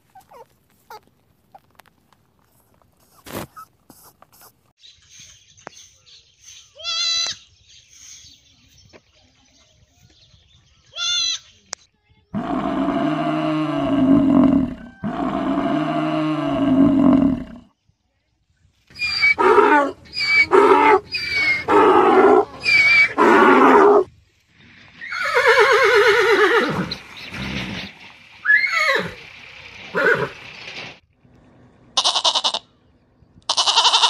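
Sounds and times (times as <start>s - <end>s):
horse whinnying: 19.0s - 24.1s, 25.0s - 27.8s, 28.4s - 29.2s, 29.9s - 30.4s.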